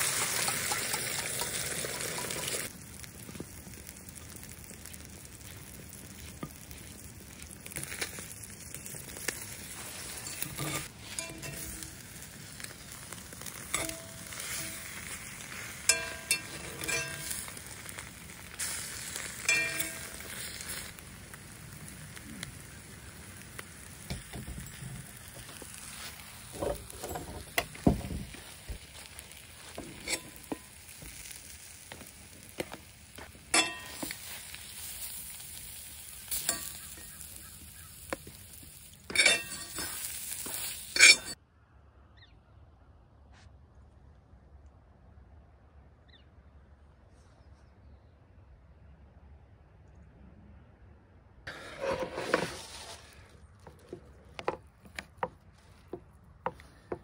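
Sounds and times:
eggs sizzling in skillet: 0.0s - 41.4s
metal utensil scraping pan: 0.2s - 2.6s, 8.8s - 20.9s, 29.1s - 31.4s, 33.5s - 35.3s, 36.3s - 41.4s, 51.5s - 53.1s.

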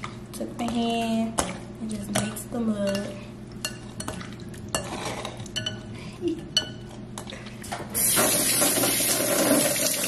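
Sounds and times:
utensils clinking against dish: 2.1s - 5.9s.

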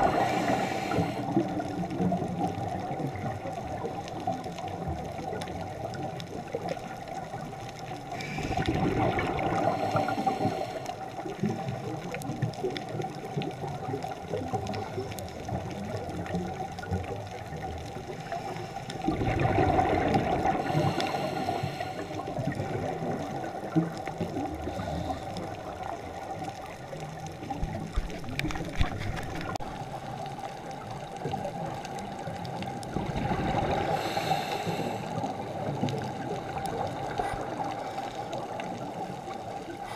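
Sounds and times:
diver regulator exhaling bubbles: 0.0s - 3.7s, 8.1s - 13.1s, 18.4s - 26.4s, 32.6s - 39.9s
underwater hiss with crackling: 0.0s - 39.9s.

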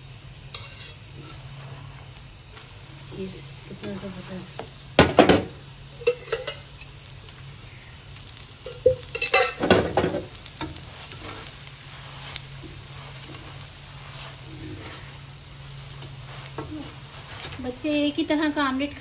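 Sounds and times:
flatbread sizzling on griddle: 0.0s - 19.0s
metal spatula scraping griddle: 0.5s - 4.4s, 6.0s - 6.7s, 8.6s - 17.8s.

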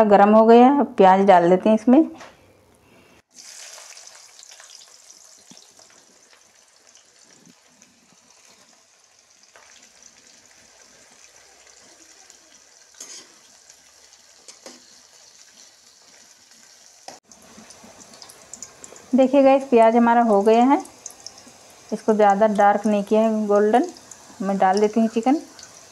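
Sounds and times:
onions sizzling in oil: 3.3s - 25.9s
metal spatula scraping a pan: 13.0s - 13.5s.

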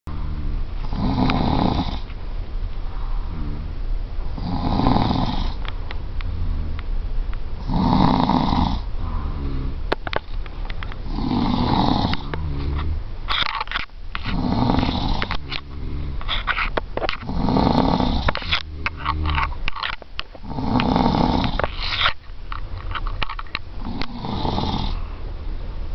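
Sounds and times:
person snoring loudly: 0.1s - 2.0s, 3.3s - 5.6s, 7.6s - 9.8s, 11.0s - 13.0s, 14.3s - 16.2s, 17.2s - 19.5s, 20.4s - 21.8s, 23.8s - 25.0s
quiet wavering breaths: 0.1s - 13.4s, 14.1s - 25.9s.

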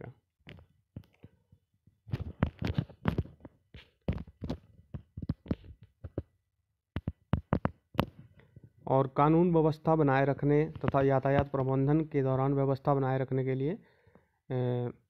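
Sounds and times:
phone handling thumps and taps: 7.0s - 8.3s.

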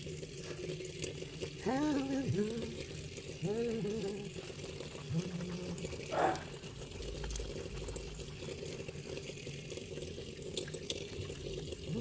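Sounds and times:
soapy hands lathering soap: 0.0s - 12.0s.

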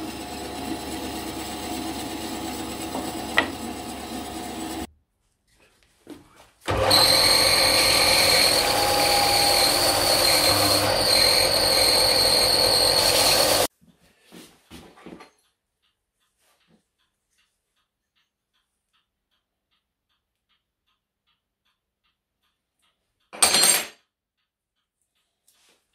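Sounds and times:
bandsaw running: 0.0s - 4.9s, 6.7s - 13.7s
belt sander whining: 0.0s - 4.9s, 6.7s - 13.7s.

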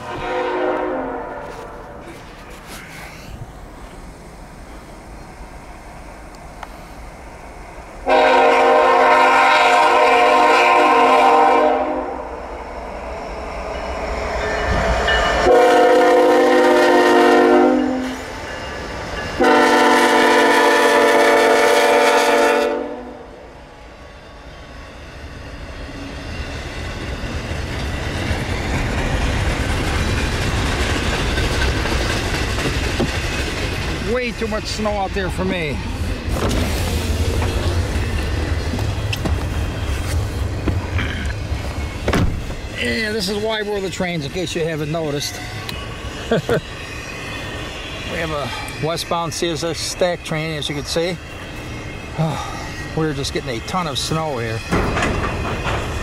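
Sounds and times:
locomotive air horn blasts: 0.0s - 2.0s, 8.0s - 12.3s, 15.4s - 18.2s, 19.4s - 23.3s
passing train rumble: 0.0s - 56.0s.

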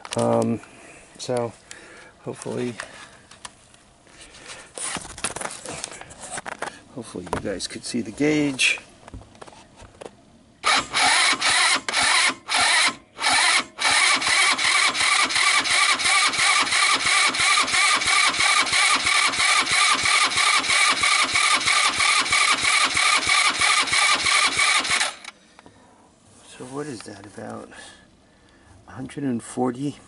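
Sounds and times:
starter motor cranking engine: 10.6s - 25.4s.

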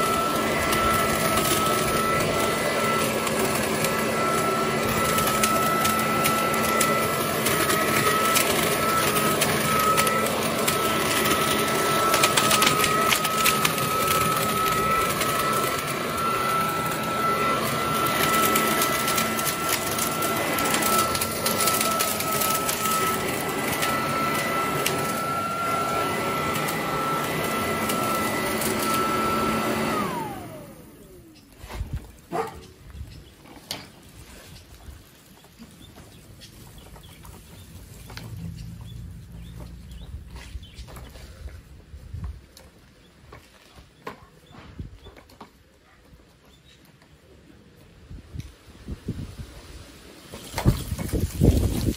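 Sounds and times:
motor spinning down: 0.0s - 31.5s, 37.0s - 41.2s
leaf blower running: 0.0s - 44.6s, 48.4s - 51.9s.

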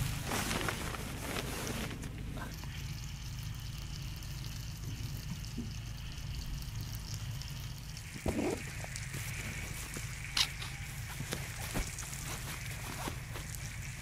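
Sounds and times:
nylon sack rustling: 0.0s - 2.4s, 8.3s - 14.0s.

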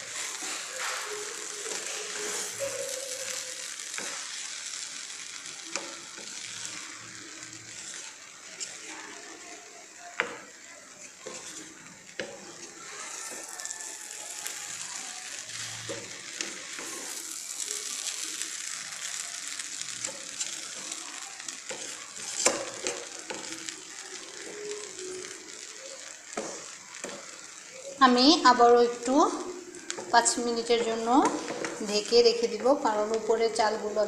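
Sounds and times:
spatula scraping rice in pan: 0.0s - 6.8s, 7.7s - 9.2s, 11.0s - 24.6s.

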